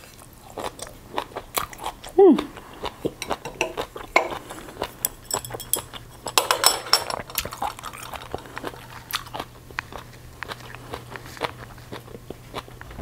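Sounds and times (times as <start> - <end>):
metal chopsticks clinking on bowl: 3.2 - 4.4, 5.0 - 7.8.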